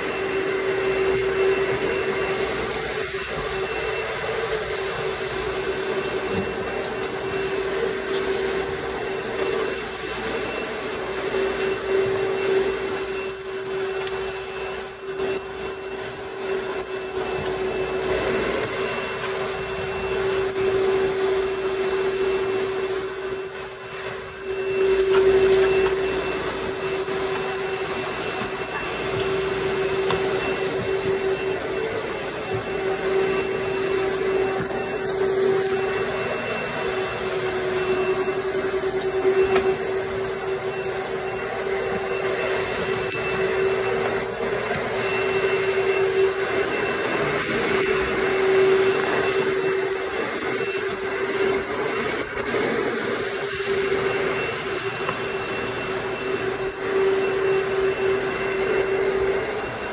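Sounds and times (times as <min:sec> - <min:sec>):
electric motor whining: 0:00.0 - 0:59.9.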